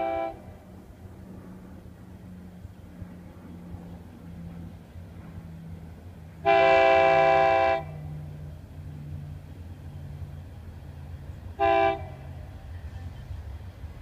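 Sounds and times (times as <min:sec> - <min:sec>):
locomotive air horn blasts: 0:00.0 - 0:00.7, 0:06.4 - 0:08.2, 0:11.6 - 0:12.5
low train rumble: 0:00.0 - 0:14.0.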